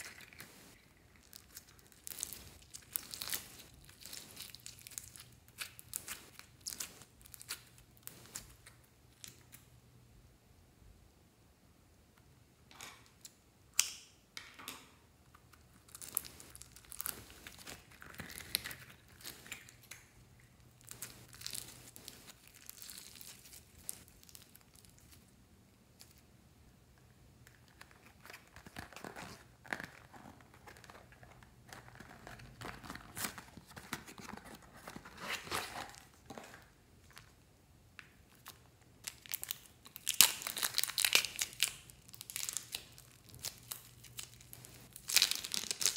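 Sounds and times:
plastic bag crinkling: 0.0 - 8.7, 15.9 - 20.0, 20.8 - 25.2, 39.0 - 45.9.

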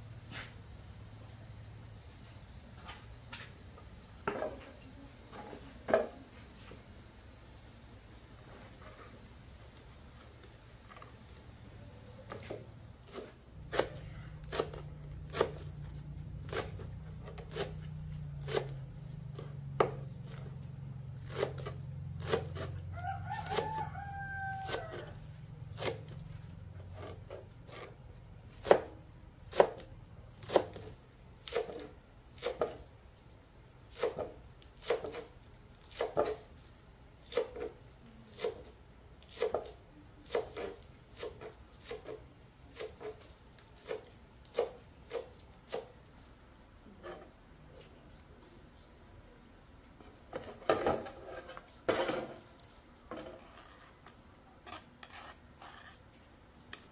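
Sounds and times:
blade chopping on wooden block: 13.1 - 15.8, 16.4 - 18.8, 28.6 - 32.8
rooster crowing: 22.7 - 25.4.

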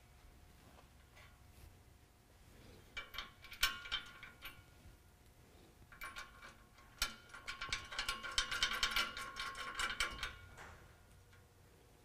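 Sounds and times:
metallic clicking and rattling: 2.9 - 4.8, 5.8 - 11.7.

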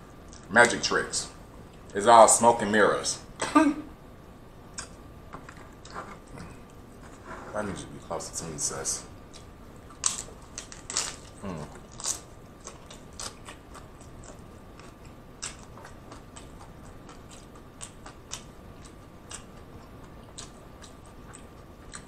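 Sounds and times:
crunchy taco chewing: 9.3 - 22.0.

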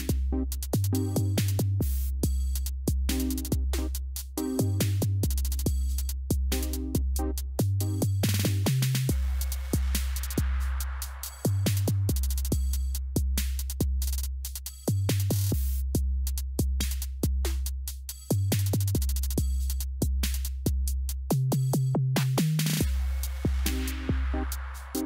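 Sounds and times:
deep bass notes: 0.0 - 10.8, 22.8 - 25.0
drum machine beat: 0.0 - 25.0.

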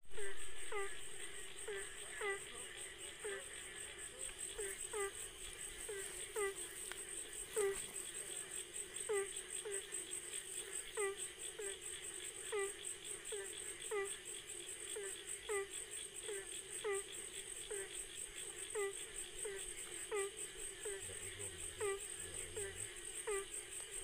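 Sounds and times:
insects trilling: 0.0 - 24.0.

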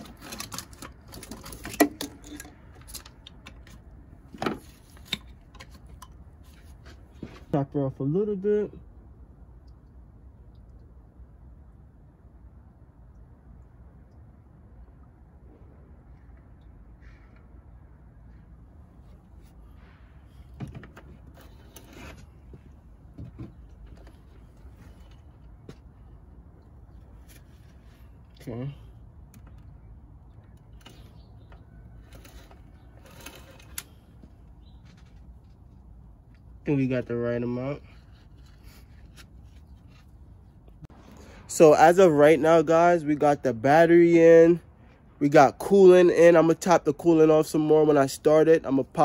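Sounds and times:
hands handling plastic and metal parts: 0.0 - 7.6.

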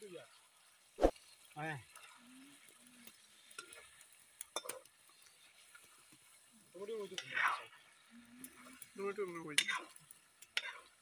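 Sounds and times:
faint sizzle: 0.0 - 11.0
clinks against pan: 4.4 - 4.9
metal spatula scraping pan: 10.5 - 10.9.

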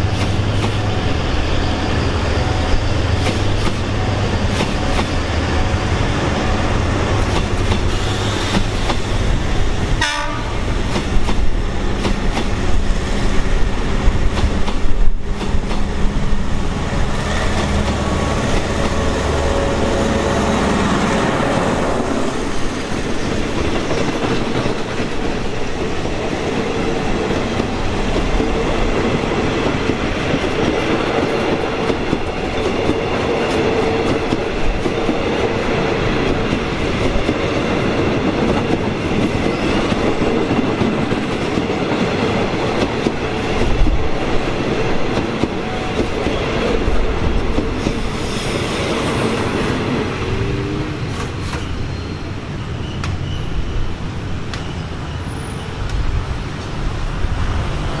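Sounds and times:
wheels clickety-clack over rail joints: 0.0 - 1.1, 2.8 - 5.4, 7.1 - 16.4, 22.6 - 51.9
train rumble: 0.0 - 58.0.

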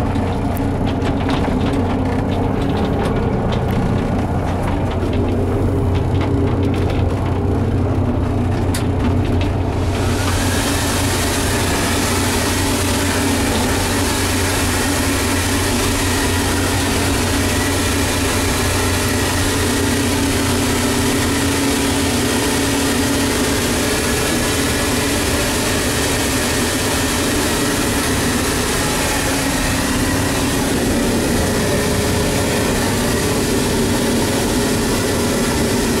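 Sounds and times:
train running hum: 0.0 - 36.0
hand dryer blowing: 9.6 - 36.0.

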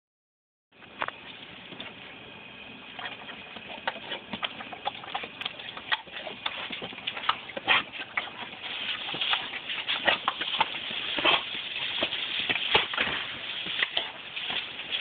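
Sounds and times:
hose nozzle spraying water: 8.5 - 15.0
water spattering: 8.5 - 15.0.

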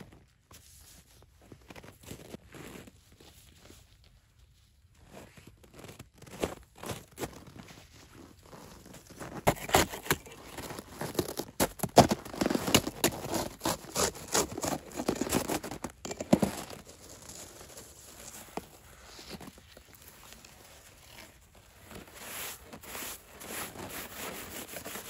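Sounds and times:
hatchet chopping frozen snow: 9.5 - 16.8.

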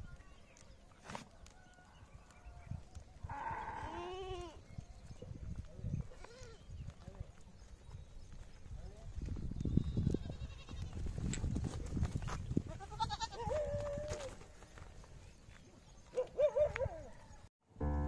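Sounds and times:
sheep or goat bleating: 3.3 - 4.6, 12.7 - 13.8
flock walking on road: 4.6 - 18.0.

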